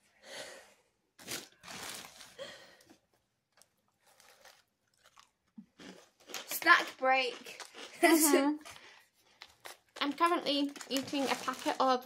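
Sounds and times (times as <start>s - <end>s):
chewing crunchy crackers: 3.5s - 12.0s.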